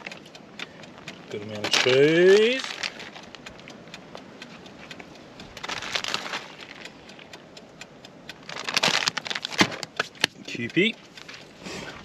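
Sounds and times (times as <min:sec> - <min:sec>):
plastic bag crinkling: 0:02.6 - 0:03.3, 0:05.6 - 0:06.8, 0:08.5 - 0:09.9.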